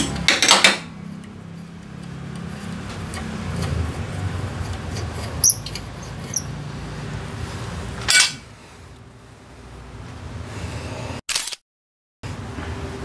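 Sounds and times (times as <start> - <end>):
steel tools scraping: 4.9 - 6.6, 8.0 - 8.4
sharp metallic clinks: 5.4 - 5.7
socket wrench clicking: 5.4 - 6.5.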